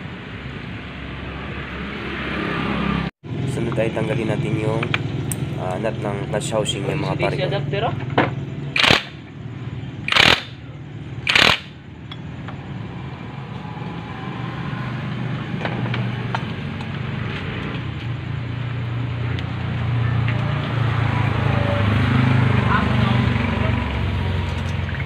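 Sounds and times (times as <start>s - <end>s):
motorcycle engine hum: 2.8s - 25.0s
impact driver bursts: 8.8s - 9.2s, 10.1s - 10.6s, 11.2s - 11.8s.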